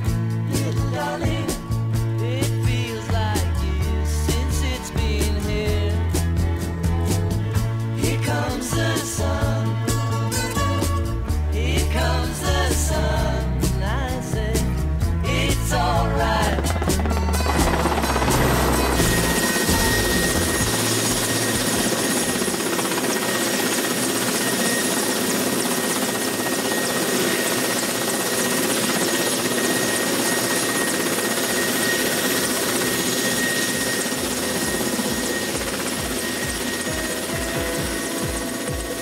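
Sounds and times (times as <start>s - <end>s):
music: 0.0s - 39.0s
helicopter in flight: 15.0s - 39.0s
high whine: 15.0s - 39.0s.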